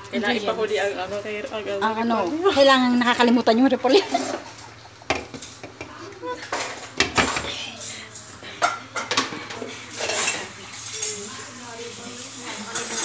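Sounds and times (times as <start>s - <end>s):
cookware clattering: 3.9s - 11.5s, 12.4s - 13.0s.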